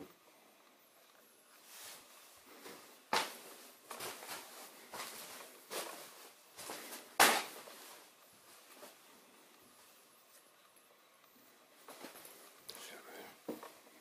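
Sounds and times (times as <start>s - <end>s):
footsteps scuffing over debris: 2.6s - 9.0s
sharp knock: 7.2s - 7.5s.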